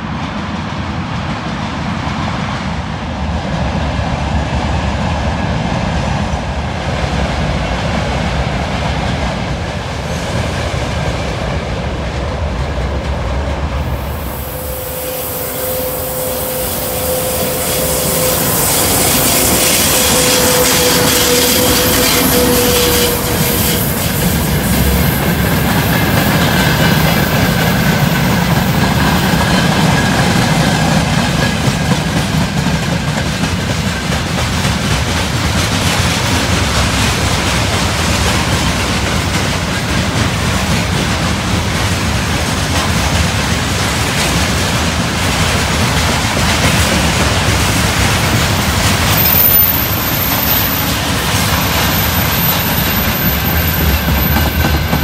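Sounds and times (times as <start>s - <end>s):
freight train wheels clattering on rails: 0.0s - 55.0s.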